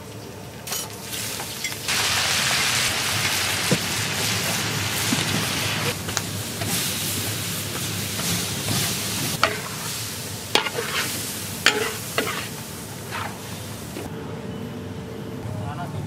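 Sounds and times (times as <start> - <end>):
meat sizzling in a wok: 1.1 - 14.0
metal spatula clanking on wok: 9.4 - 9.8, 11.6 - 12.5.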